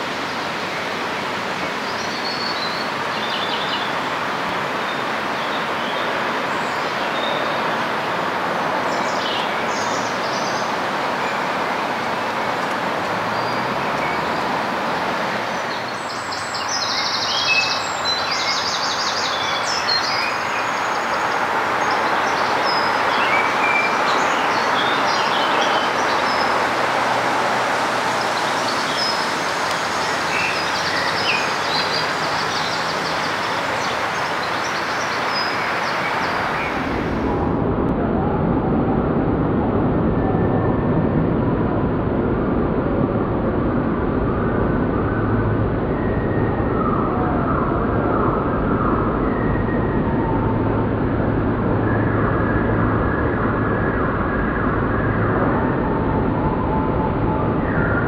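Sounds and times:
steady rushing noise: 0.0 - 58.0
small birds chirping: 12.4 - 37.2.

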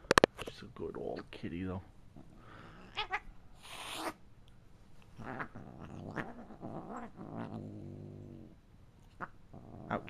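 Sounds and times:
cat growling: 2.2 - 4.2, 5.1 - 10.0
cat hissing: 2.3 - 4.2, 5.1 - 7.6.

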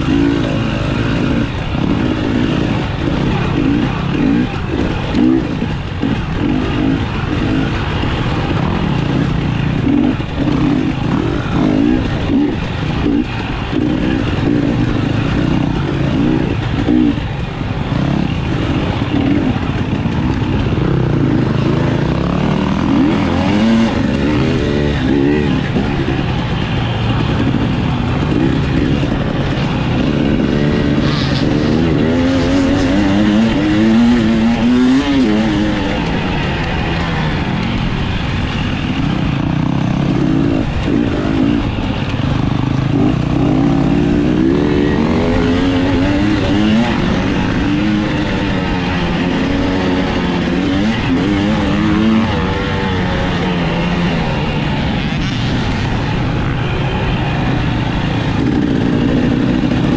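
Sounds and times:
dirt bike engine revving: 0.0 - 59.9.

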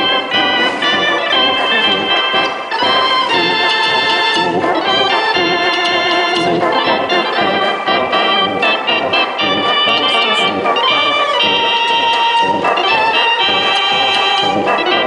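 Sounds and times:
mechanical dance organ playing: 0.0 - 15.0.

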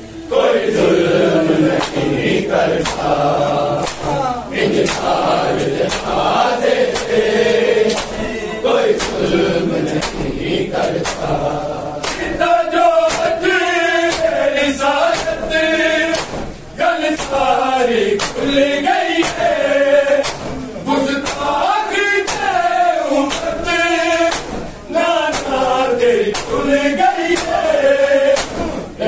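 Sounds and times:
men chanting in unison: 0.1 - 29.0
hands slapping chests: 1.8 - 2.1, 2.8 - 3.2, 3.8 - 6.2, 6.9 - 8.2, 9.0 - 11.4, 12.0 - 12.4, 13.1 - 13.4, 14.1 - 14.4, 15.1 - 15.5, 16.1 - 16.5, 17.2 - 17.5, 18.2 - 18.6, 19.2 - 19.5, 20.2 - 20.6, 21.2 - 21.6, 22.2 - 22.6, 23.3 - 23.5, 24.3 - 24.7, 25.3 - 25.6, 26.3 - 26.6, 27.2 - 27.7, 28.3 - 28.8.

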